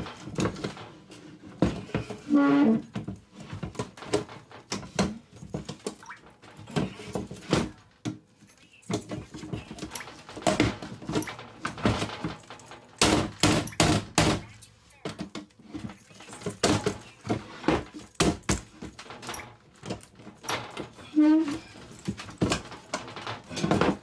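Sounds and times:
screwdriver clanking and scraping metal: 8.9 - 14.5, 15.2 - 24.0.

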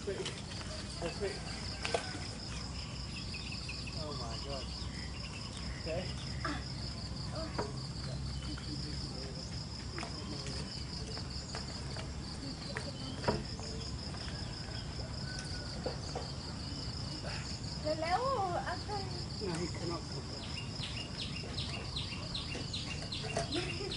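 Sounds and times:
insects chirring: 0.0 - 23.9.

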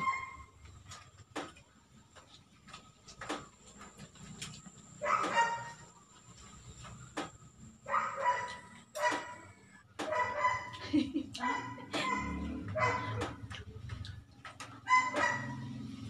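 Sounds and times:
high-pitched yelping cry: 11.4 - 13.3, 14.9 - 15.5.

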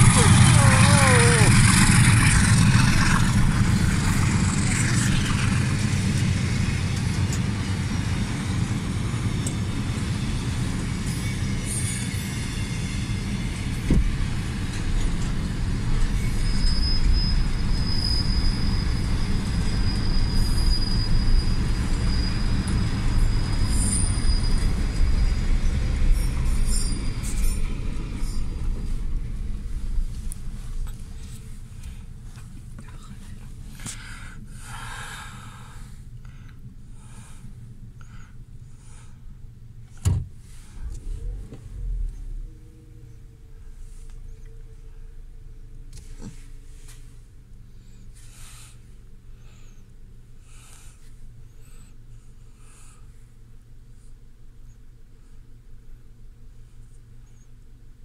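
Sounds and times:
high wheel squeal: 0.0 - 7.4, 9.1 - 13.8, 14.8 - 29.8
train wagons rumbling on rails: 0.0 - 34.7.

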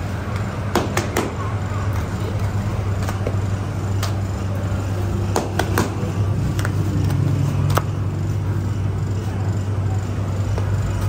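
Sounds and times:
low machine drone: 0.0 - 11.0.

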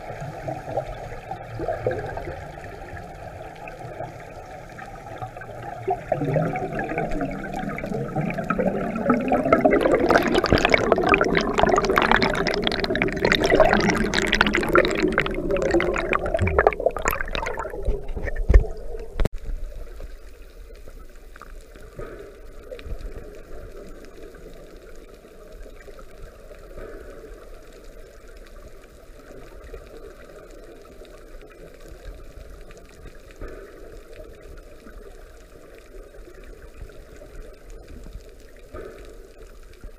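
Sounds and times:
regulator bubbles underwater: 0.0 - 39.9
steady underwater hiss: 0.0 - 39.9
underwater thump: 6.1 - 19.3.

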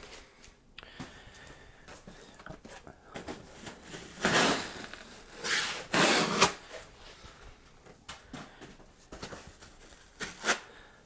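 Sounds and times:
packing material rubbing and scraping: 3.6 - 6.6.

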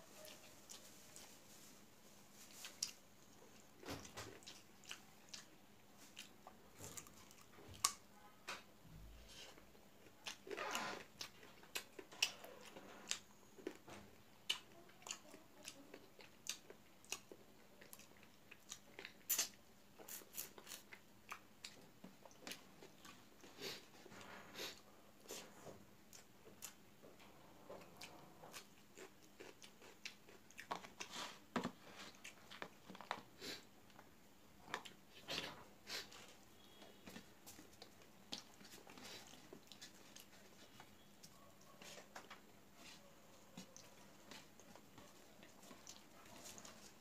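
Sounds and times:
chewing and mouth smacking: 2.7 - 8.0, 14.4 - 23.2, 27.8 - 31.1, 34.7 - 43.0, 43.6 - 47.0.

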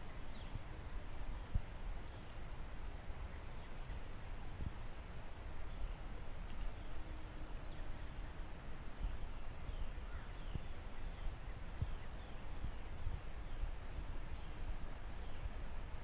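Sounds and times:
wind rumbling on microphone: 0.0 - 16.0
faint bird calls: 5.6 - 15.6.

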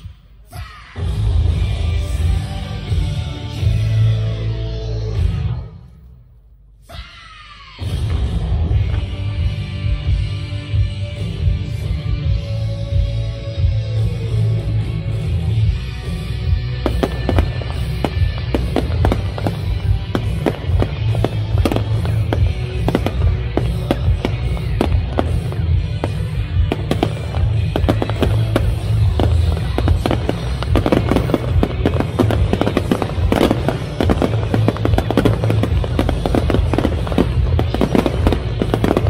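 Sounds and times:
loud music from sound system: 0.0 - 6.0, 7.7 - 39.0
fireworks bangs and crackles: 7.8 - 39.0.

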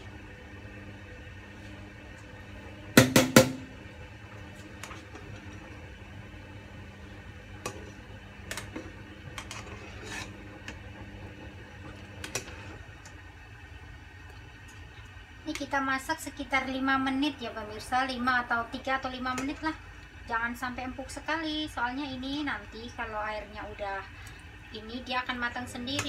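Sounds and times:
steady low hum: 0.0 - 26.0
metal skimmer knocking on pot: 3.0 - 3.7.

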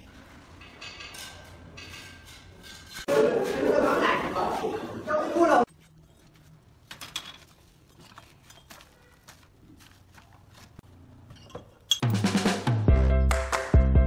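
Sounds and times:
bricks clinking on metal mesh: 6.9 - 9.0
loud music: 12.1 - 14.0.

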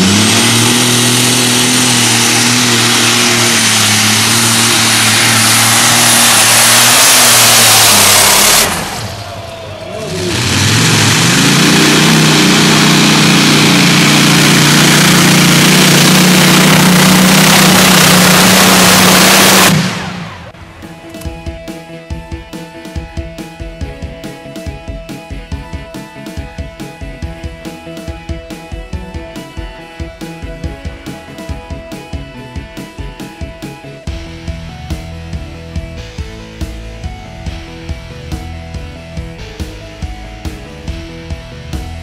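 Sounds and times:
tractor engines running flat out: 0.0 - 20.6.

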